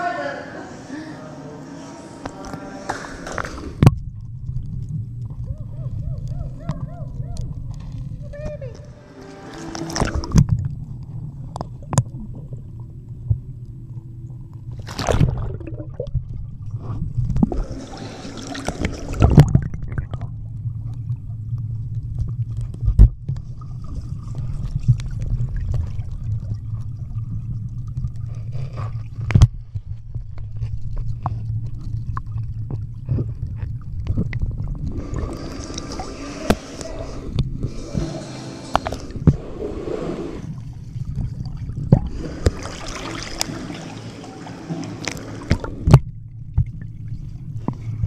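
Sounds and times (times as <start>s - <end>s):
underwater rumble of moving water: 1.6s - 48.0s
sharp knocks underwater: 2.9s - 5.5s, 18.6s - 21.2s, 45.0s - 46.9s.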